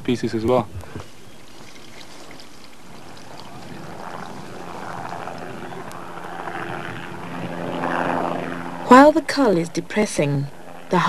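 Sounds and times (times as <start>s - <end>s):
low engine drone: 1.0s - 11.0s.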